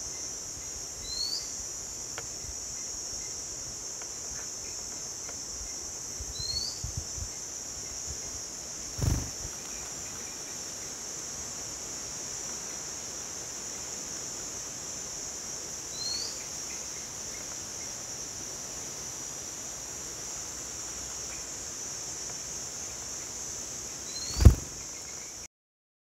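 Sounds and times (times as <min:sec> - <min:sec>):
insects droning: 0:00.0 - 0:25.5
faint bird twitters: 0:08.9 - 0:09.9, 0:24.1 - 0:25.3
bird chirp: 0:24.1 - 0:25.4.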